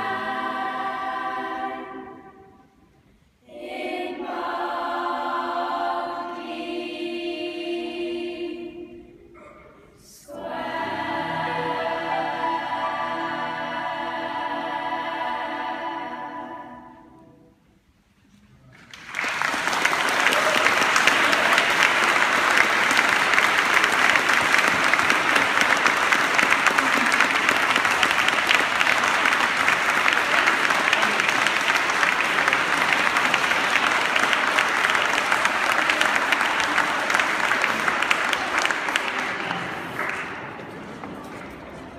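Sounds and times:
girls' choir holding a chord: 0.0s - 9.5s, 10.1s - 17.6s
audience applause: 18.8s - 41.9s.

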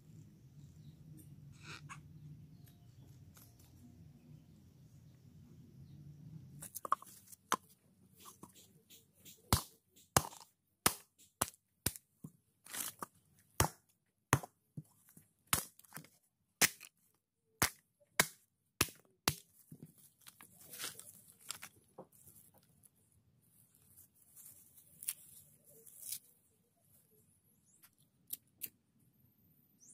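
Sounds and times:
coconut husk cracking: 9.5s - 12.0s, 12.6s - 13.8s, 14.4s - 17.0s
loose fibre rustling: 12.0s - 13.5s, 19.4s - 26.5s.

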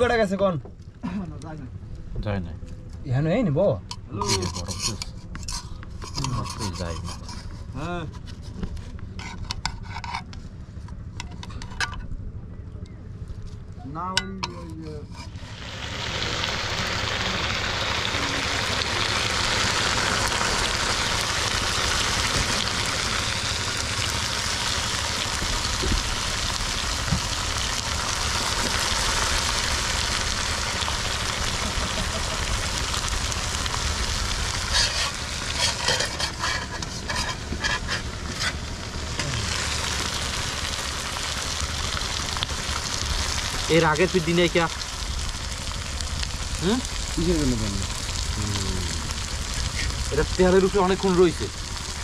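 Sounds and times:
clicks and scrapes against pan: 3.9s - 10.4s, 34.7s - 38.6s
fish sizzling in hot oil: 15.2s - 52.0s.

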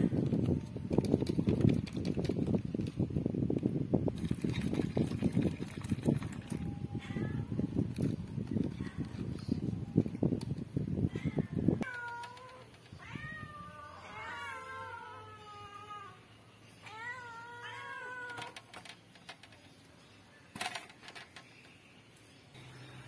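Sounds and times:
cats meowing: 11.1s - 18.7s.

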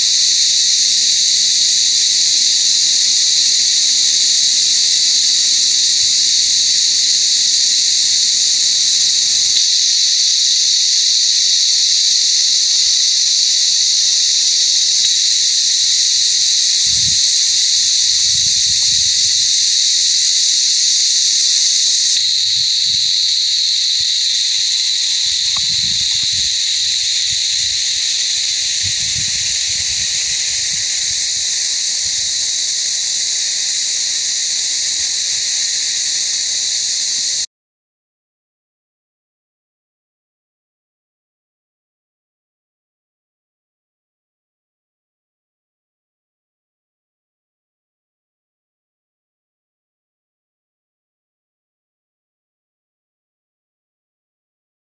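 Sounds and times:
cicadas buzzing: 0.0s - 37.5s.

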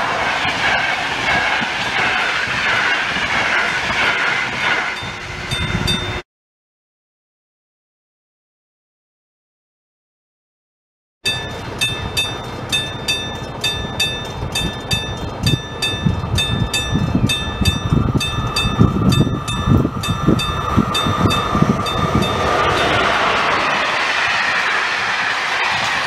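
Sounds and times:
low rail rumble: 0.0s - 6.2s, 11.2s - 26.0s
high-pitched ticking: 11.3s - 23.0s.

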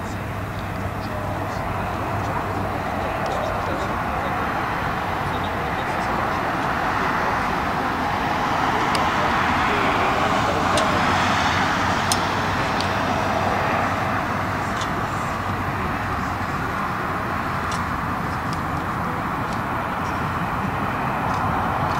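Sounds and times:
steady loud roar: 0.0s - 21.9s.

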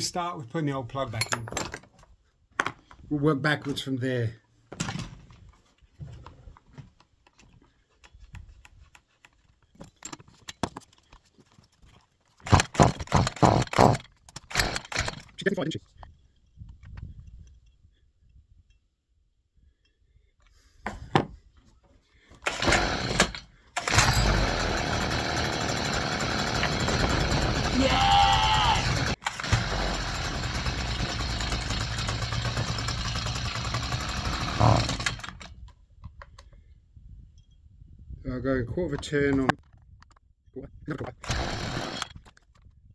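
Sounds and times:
recoil starter rattling: 12.5s - 15.4s, 22.4s - 27.8s, 28.8s - 35.6s
strimmer engine running: 22.5s - 35.5s, 41.2s - 42.1s.

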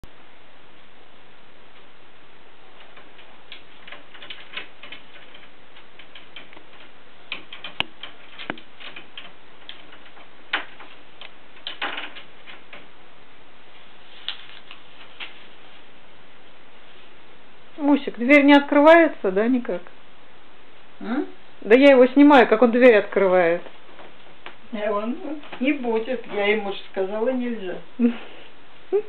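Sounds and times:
cat scratching cupboard door: 2.8s - 12.9s
cupboard door rattling in frame: 2.8s - 12.9s.

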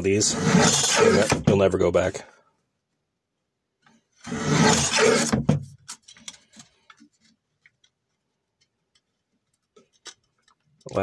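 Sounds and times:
guillotine blade cutting metal: 0.3s - 1.4s, 4.3s - 5.4s.

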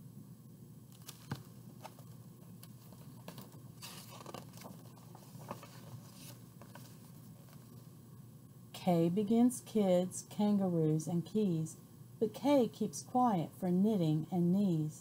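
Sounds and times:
page turning rustle: 0.9s - 7.9s.

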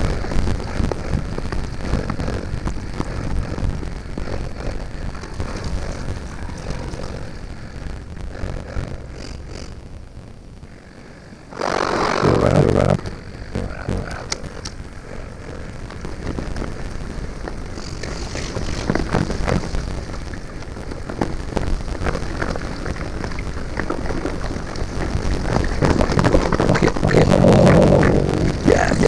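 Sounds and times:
wind noise: 0.0s - 29.0s
low rumble: 12.2s - 29.0s
bike rattling and knocking: 15.9s - 27.2s.

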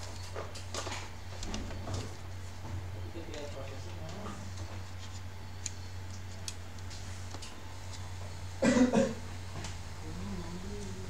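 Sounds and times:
steady low hum: 0.0s - 11.0s
person coughing: 8.6s - 9.2s.

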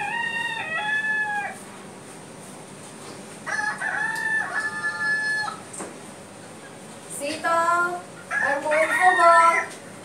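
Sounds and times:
rooster crowing: 0.0s - 1.6s, 3.4s - 5.7s, 8.3s - 9.9s.

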